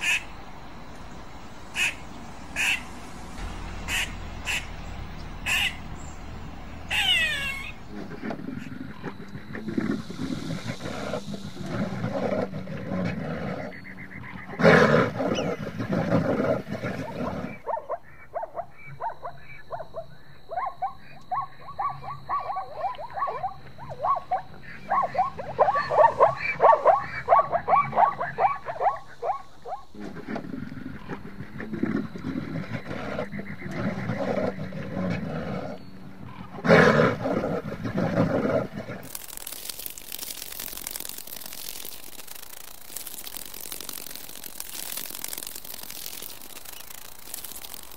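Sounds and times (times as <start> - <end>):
bear growling and roaring: 3.3 - 13.8, 14.4 - 17.6, 29.9 - 39.1
short high animal calls: 6.9 - 7.8.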